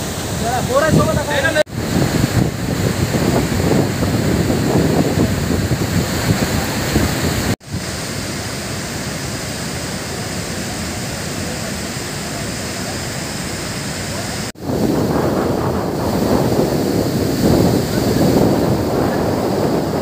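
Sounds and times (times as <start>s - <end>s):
wind buffeting microphone: 0.0s - 7.9s, 14.6s - 20.0s
waterfall rushing: 0.0s - 20.0s.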